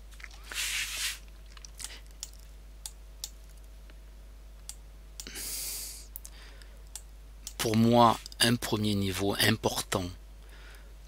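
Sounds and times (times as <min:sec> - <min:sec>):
faint electrical hum: 0:00.0 - 0:11.0
short breaths: 0:10.4 - 0:11.0.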